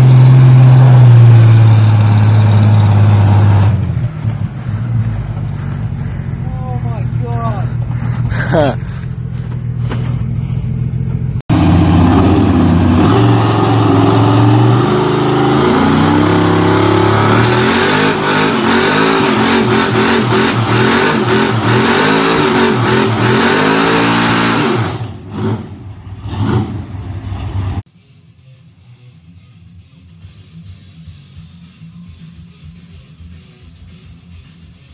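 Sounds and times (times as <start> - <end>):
quieter truck engine running: 0.0 - 27.9
truck engine revving: 0.0 - 27.9.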